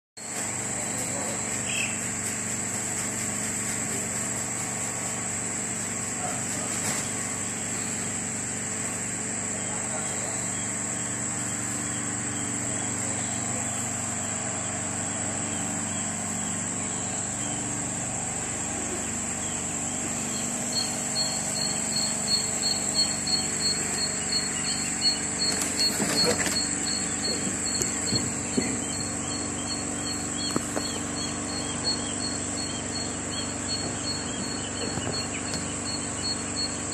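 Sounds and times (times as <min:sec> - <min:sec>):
steady low hum: 0:00.2 - 0:36.9
chicks peeping: 0:00.3 - 0:36.9
high whine: 0:07.5 - 0:36.9.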